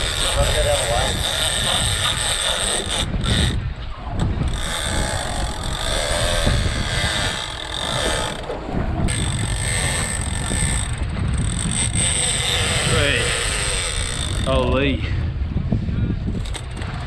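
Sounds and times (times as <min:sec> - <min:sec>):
fishing reel ratcheting buzz: 0:00.0 - 0:03.6, 0:04.4 - 0:08.5, 0:09.1 - 0:14.6
low rumble of wind and boat: 0:00.0 - 0:17.0.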